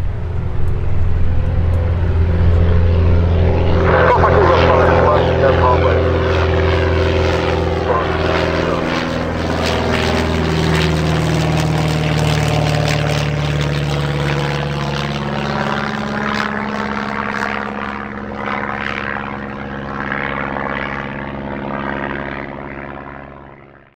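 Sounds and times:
propeller plane passing overhead: 0.0 - 23.9.

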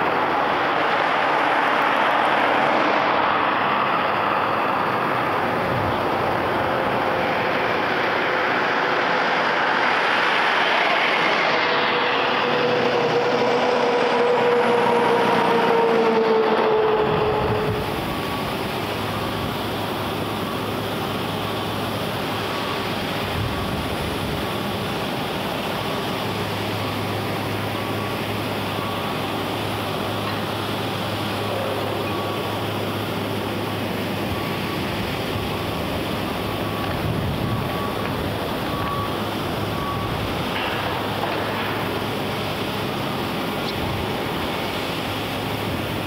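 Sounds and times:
distant surf: 0.0 - 46.0
wind: 0.0 - 46.0
faint high beeping: 26.7 - 29.8, 31.2 - 41.2.

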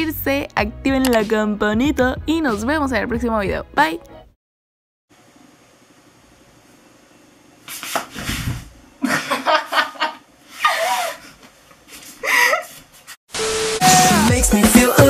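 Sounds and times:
woman laughing: 9.0 - 11.4, 12.0 - 12.8.

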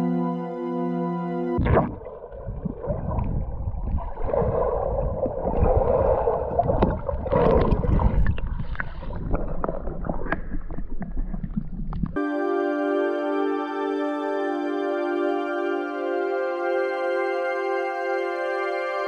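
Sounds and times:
muffled underwater sloshing: 1.6 - 12.2.

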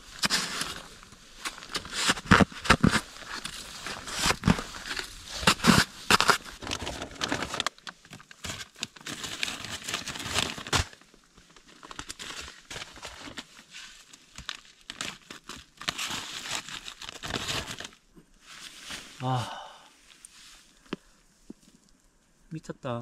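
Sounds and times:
crinkling and rustling: 0.0 - 19.3
hand tool scraping snow: 0.2 - 6.5.

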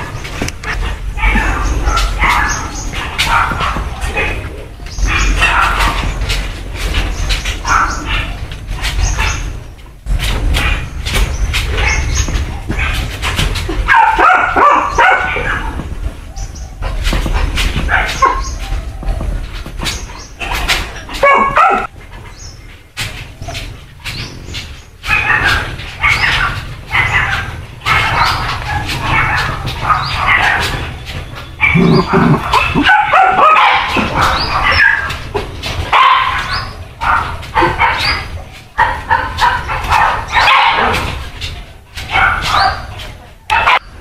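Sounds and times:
puppies yapping and barking: 0.0 - 44.0.

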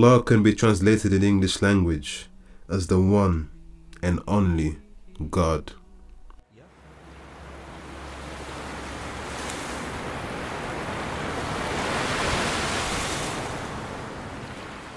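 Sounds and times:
waves breaking on a beach: 6.6 - 14.9.

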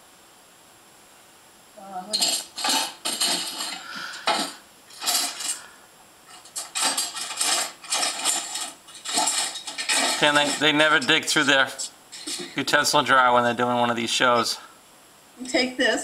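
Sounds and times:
utensils clattering in drawer: 2.1 - 5.6, 6.3 - 12.7.

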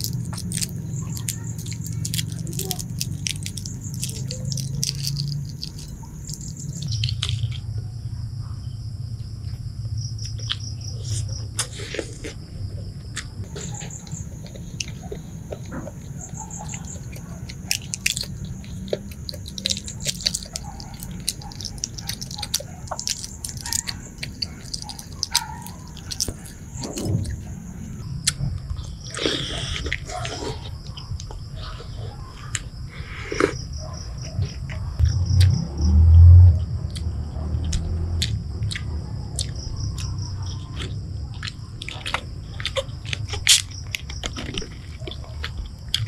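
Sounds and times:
eggshell being handled: 0.0 - 7.6, 13.5 - 28.0
wet chewing clicks and smacks: 0.0 - 7.6, 13.2 - 35.6, 36.6 - 46.0
low hum: 34.9 - 38.8.

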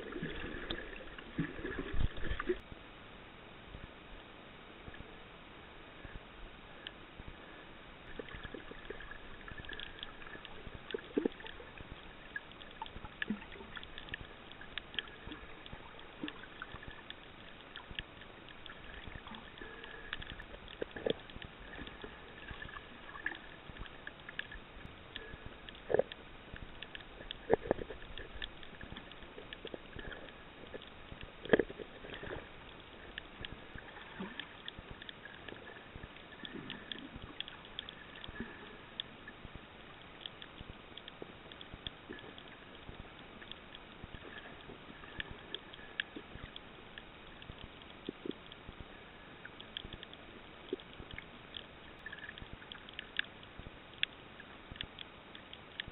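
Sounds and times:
underwater crackle of small clicks: 0.0 - 2.7, 3.7 - 55.9.

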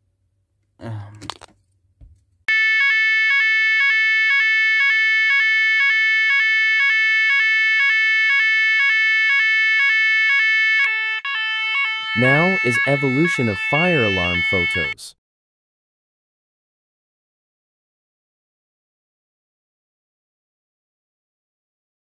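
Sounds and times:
two-tone fire alarm: 2.5 - 15.0.

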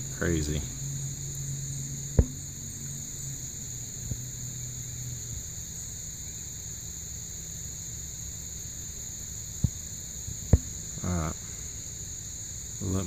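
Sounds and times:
low hum: 0.0 - 6.8
high-pitched insect chorus: 0.0 - 13.0.

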